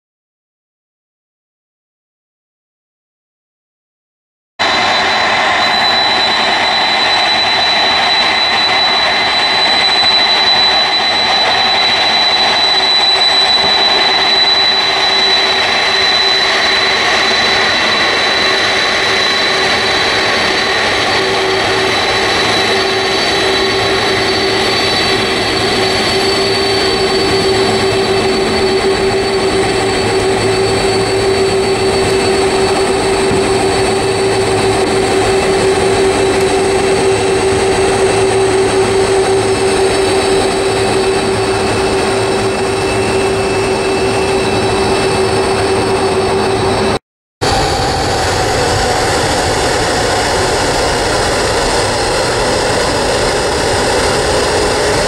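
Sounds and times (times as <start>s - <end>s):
high whistle: 4.6s - 47.0s
jet engines whining: 4.6s - 55.0s
low hum: 4.6s - 55.0s.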